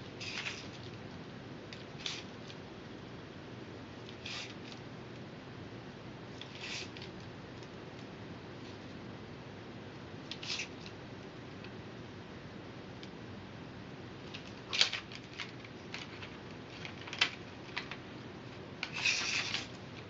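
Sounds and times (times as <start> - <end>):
knife cutting straw: 4.2 - 4.6.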